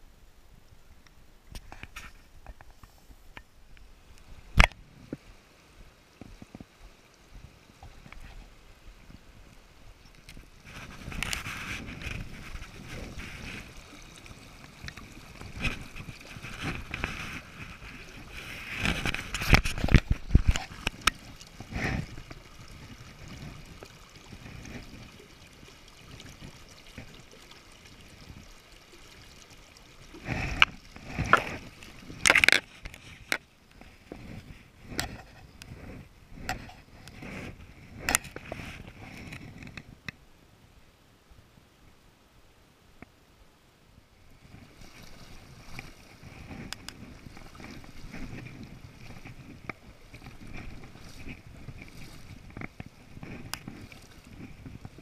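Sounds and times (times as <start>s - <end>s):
river splashing and gurgling: 0.0s - 40.3s, 43.8s - 55.0s.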